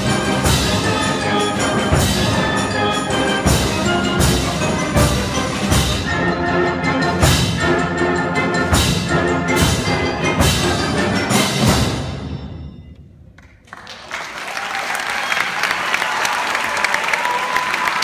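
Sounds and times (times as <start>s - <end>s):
drum and cymbal hits: 0.0s - 6.4s, 7.0s - 8.0s, 8.6s - 12.6s
wind band playing: 0.0s - 12.6s
audience applause: 13.4s - 18.0s.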